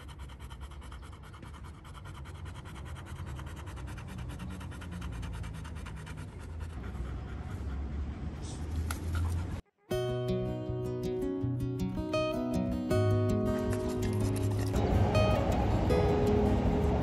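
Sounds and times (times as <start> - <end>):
dog panting: 0.0 - 9.7.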